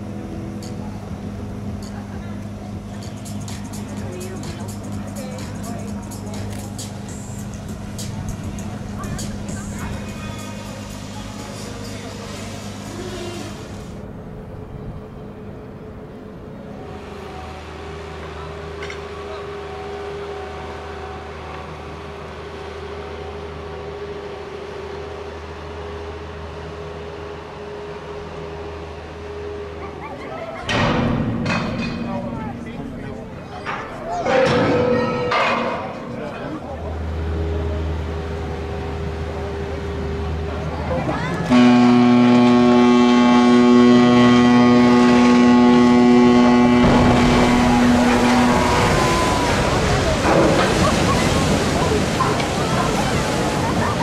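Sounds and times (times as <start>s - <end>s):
machinery hum: 0.0s - 54.0s
ship's horn blast: 16.8s - 29.8s, 31.9s - 54.0s
loud rushing splash: 46.7s - 54.0s.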